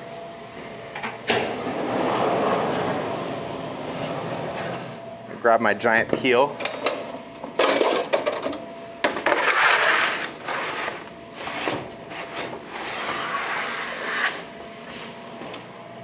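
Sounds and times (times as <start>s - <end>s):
wooden peel scraping oven floor: 9.3s - 14.5s.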